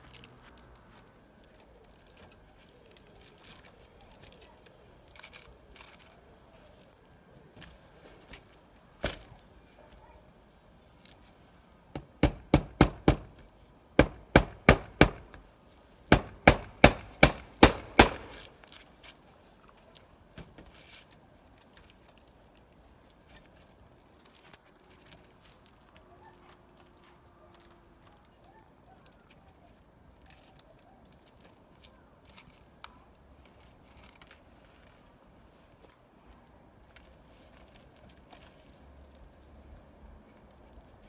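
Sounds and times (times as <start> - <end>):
hammer driving nails: 12.0 - 13.3, 14.0 - 15.4, 16.1 - 18.5.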